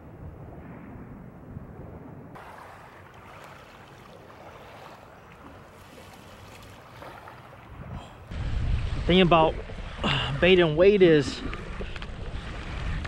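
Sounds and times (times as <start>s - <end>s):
waves lapping on gravel: 2.4s - 7.7s.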